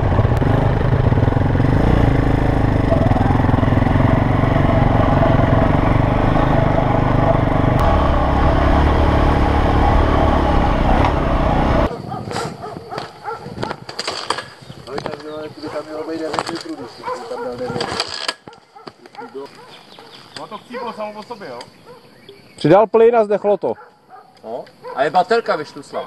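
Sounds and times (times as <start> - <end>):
motorcycle engine running: 0.0 - 11.9.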